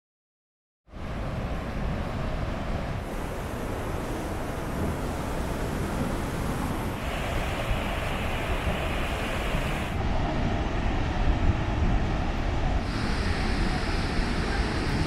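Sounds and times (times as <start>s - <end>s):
waterfall rushing: 3.0s - 10.1s, 12.8s - 15.0s.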